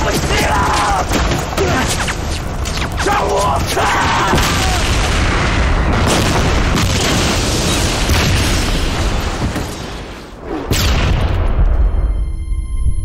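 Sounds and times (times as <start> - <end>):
heavy explosion rumble: 3.4 - 12.2
sharp explosion blasts: 4.0 - 12.1.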